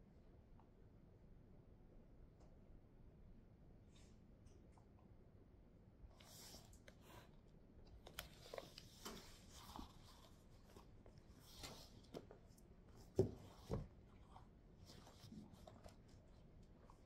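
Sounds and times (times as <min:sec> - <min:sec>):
paper and sleeve rustling: 0:08.0 - 0:17.0.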